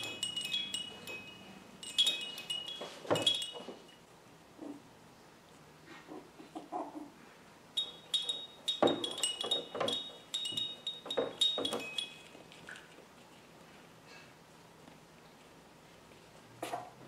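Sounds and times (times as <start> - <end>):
small bell jingling: 0.0 - 4.0, 7.8 - 12.8
puppies scuffling: 0.0 - 4.1.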